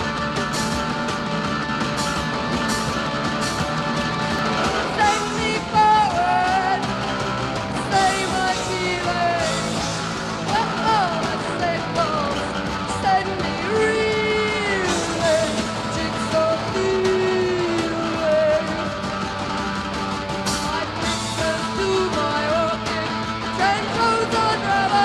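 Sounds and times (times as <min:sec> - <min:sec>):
rock band playing live: 0:00.0 - 0:25.0
woman singing: 0:04.9 - 0:06.9, 0:07.8 - 0:09.8, 0:10.5 - 0:19.1, 0:20.6 - 0:25.0.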